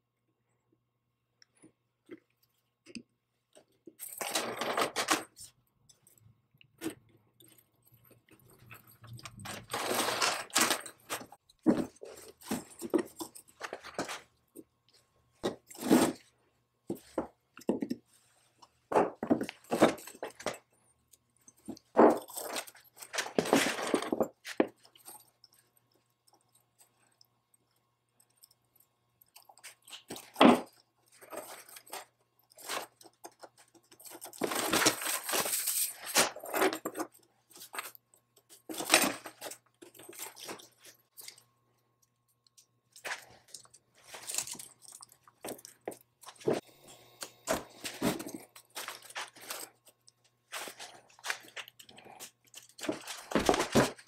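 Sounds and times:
chain rattle: 0:06.8 - 0:14.2, 0:43.0 - 0:46.6.

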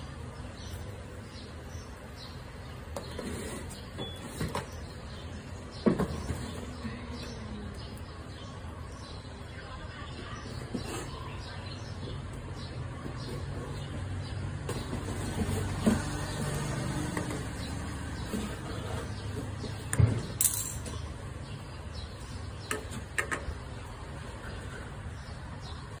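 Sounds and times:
knocks and scrapes of handling: 0:02.9 - 0:04.9, 0:10.4 - 0:11.4, 0:13.0 - 0:21.0.

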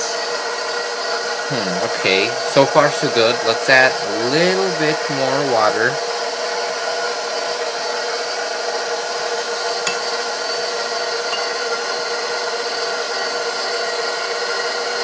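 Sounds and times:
dough hook scraping flour: 0:00.0 - 0:06.0
stand mixer motor humming: 0:00.0 - 0:15.0.

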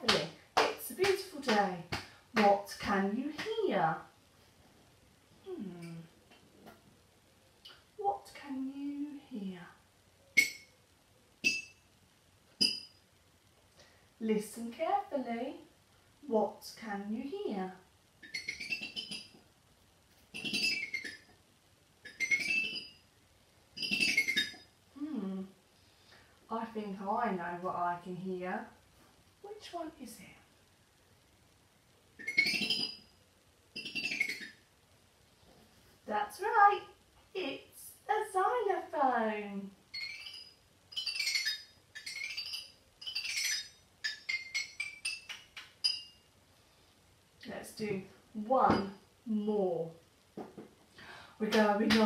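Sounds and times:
toy xylophone glissando: 0:40.0 - 0:46.1.

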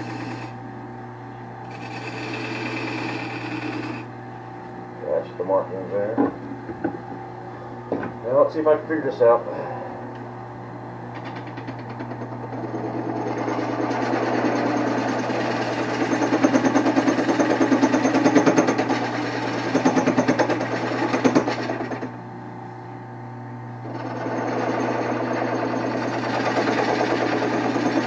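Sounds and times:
wood lathe humming: 0:00.0 - 0:00.6, 0:01.6 - 0:04.1, 0:11.2 - 0:22.1, 0:23.8 - 0:28.0.

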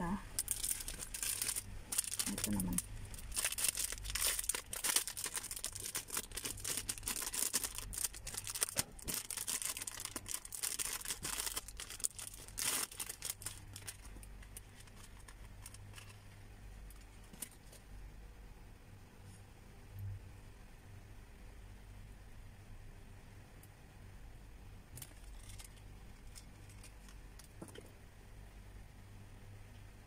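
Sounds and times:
faint low hum: 0:00.0 - 0:30.0
plastic bags crinkling: 0:00.4 - 0:16.2, 0:25.0 - 0:27.8.

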